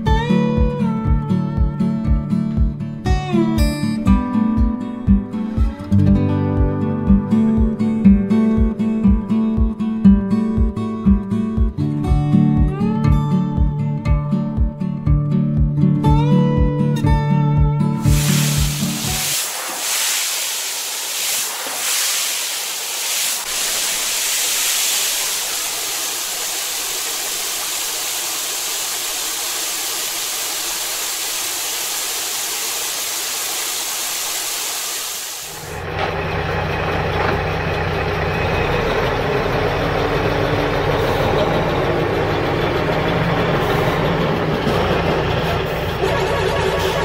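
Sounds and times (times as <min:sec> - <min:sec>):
steady hiss: 0:18.0 - 0:35.7
truck engine running: 0:35.5 - 0:47.0.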